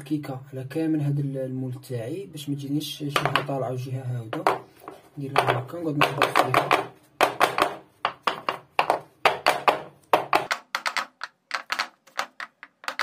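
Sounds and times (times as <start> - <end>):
metal tin knocking on countertop: 5.3 - 11.0.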